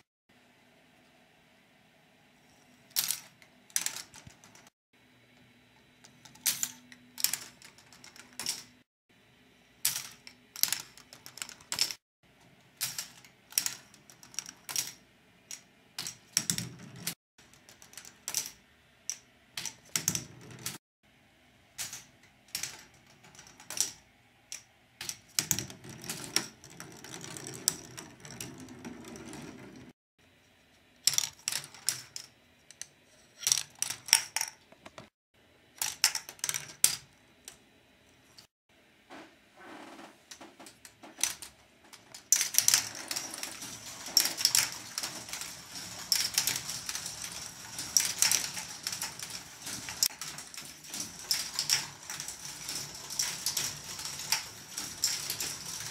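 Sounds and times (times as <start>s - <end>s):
balls rolling along track: 12.9s - 20.8s, 25.1s - 30.0s, 39.8s - 55.9s
plastic balls clacking on track: 42.1s - 55.9s.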